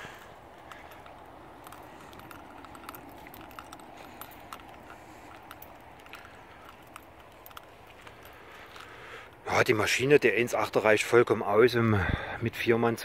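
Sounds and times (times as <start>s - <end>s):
footsteps on asphalt: 0.0s - 9.4s.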